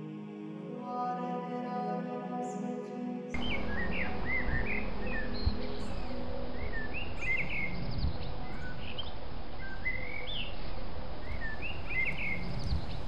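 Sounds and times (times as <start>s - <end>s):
steady background hiss: 0.0s - 13.0s
small birds chirping: 3.4s - 13.0s.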